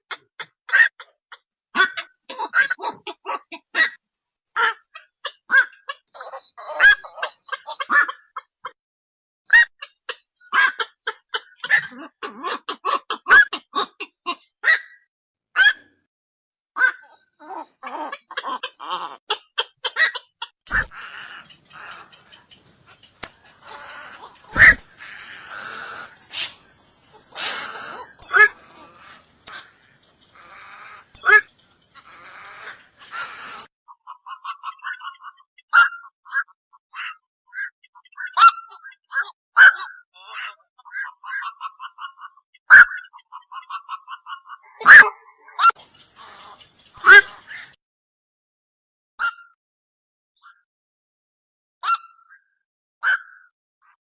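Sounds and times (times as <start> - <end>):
heron harsh quok calls: 1.8 - 4.0, 9.5 - 15.0, 16.8 - 47.8
heron harsh call: 23.6 - 26.5.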